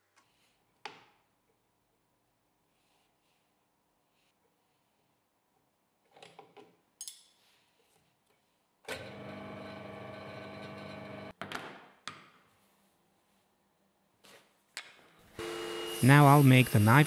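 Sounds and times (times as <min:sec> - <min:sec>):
electric motor humming: 0:15.4 - 0:17.0.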